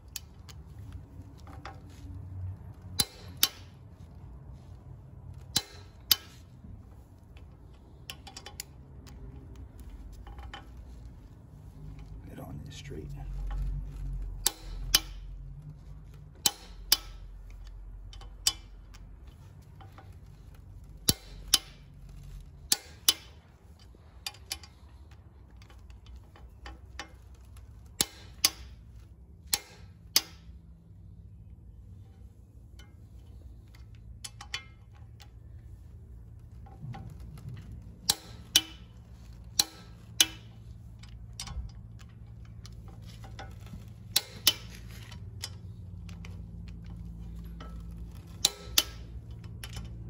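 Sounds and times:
light ratchet clicks: 0.0 - 2.1, 2.7 - 12.2, 13.3 - 31.0, 31.9 - 50.0
steady low hum: 0.0 - 50.0
torque wrench clicking: 3.0 - 3.8, 14.4 - 15.4, 16.4 - 19.0, 19.8 - 24.8, 27.9 - 28.8, 38.1 - 49.9.

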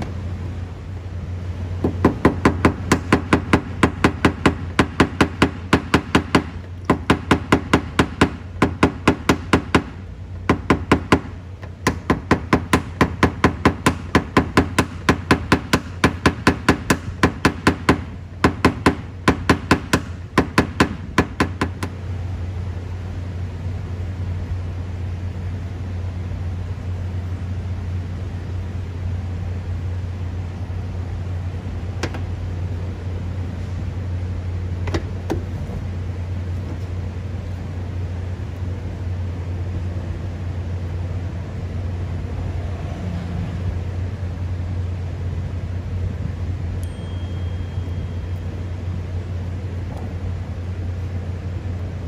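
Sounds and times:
steady low hum: 0.0 - 52.0
hammer tapping on metal panel: 1.8 - 22.0.

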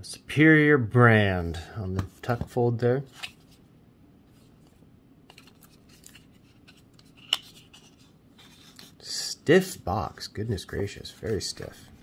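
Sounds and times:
card stock scraping and rubbing: 5.3 - 9.0, 11.1 - 12.0.

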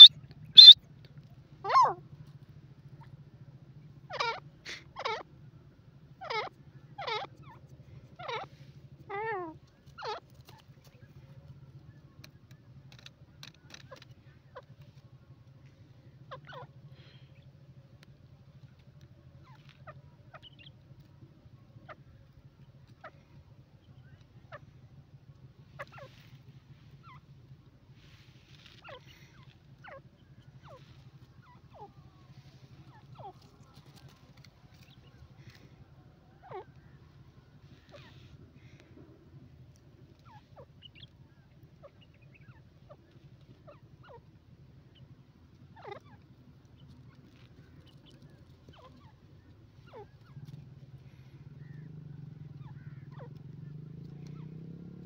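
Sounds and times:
bird giving squeaky calls: 0.0 - 0.8, 28.8 - 30.0
francolin calling: 0.0 - 0.8
steady low hum: 0.0 - 55.0.

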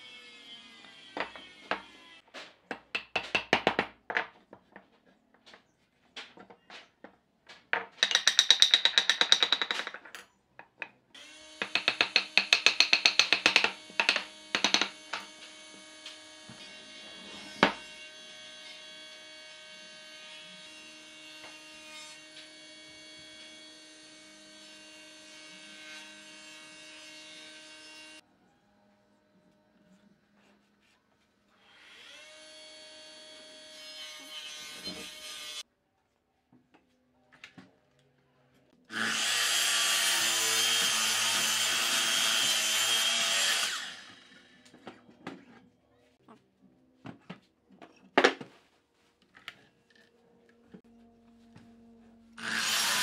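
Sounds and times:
wooden parts knocking together: 1.2 - 11.0, 11.6 - 15.3
rapid wooden taps: 7.5 - 10.1, 11.6 - 15.2.

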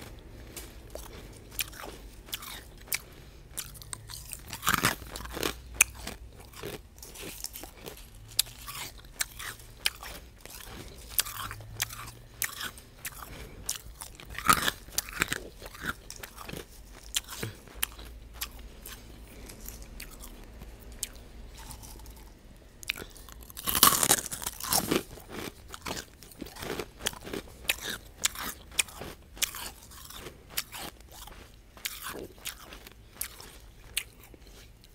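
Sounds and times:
ice being chewed: 0.0 - 34.9.

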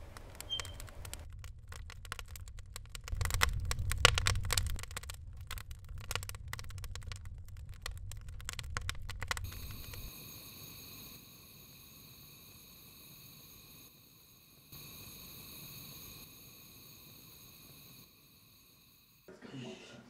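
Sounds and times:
low fire rumble: 0.0 - 18.1
wood fire crackling: 0.0 - 19.2.

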